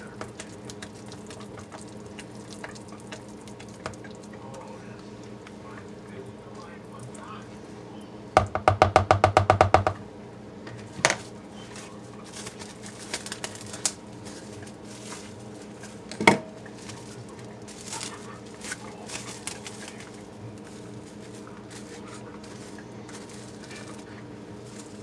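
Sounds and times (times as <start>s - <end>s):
taps on plastic tub: 8.4s - 10.0s
plastic wrap crinkling: 11.2s - 25.0s.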